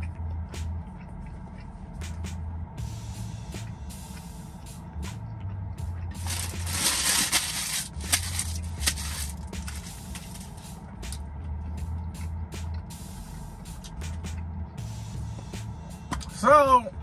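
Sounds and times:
crunching fried tortilla: 6.1 - 11.2.

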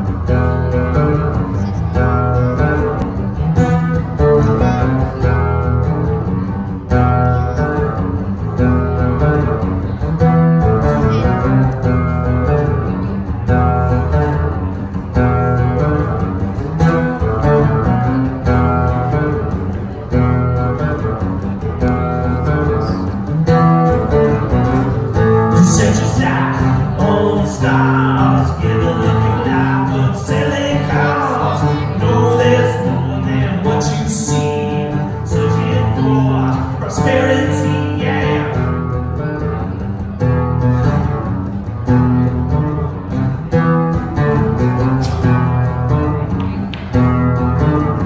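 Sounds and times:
acoustic guitar chords: 0.0 - 48.0
man singing: 24.0 - 39.3.

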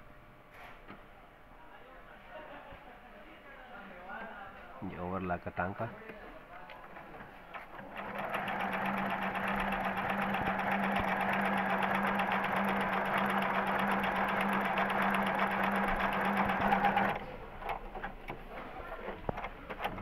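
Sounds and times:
sewing machine running: 7.7 - 18.1.

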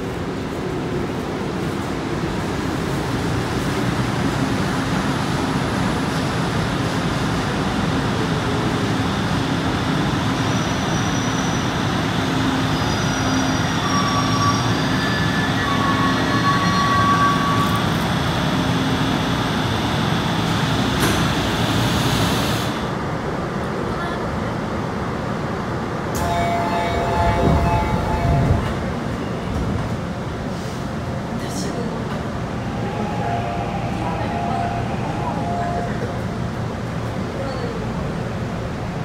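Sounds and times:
metro train braking: 1.3 - 23.2, 26.0 - 38.6
train doors opening: 20.4 - 22.8, 26.1 - 31.0.

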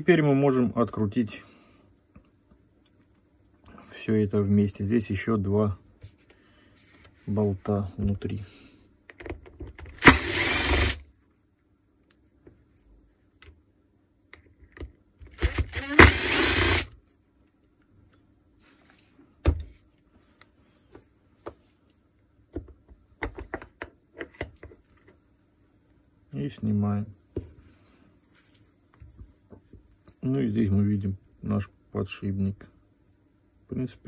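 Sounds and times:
electric screwdriver whirring: 9.9 - 11.0, 15.4 - 16.9.

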